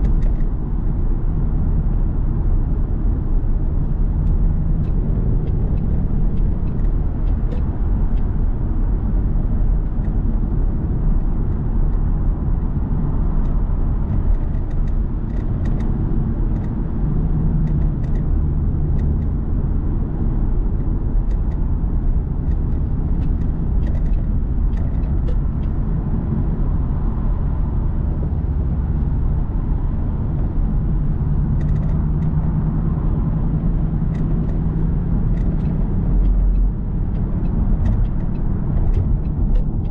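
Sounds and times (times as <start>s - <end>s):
car road and engine rumble: 0.0s - 39.9s.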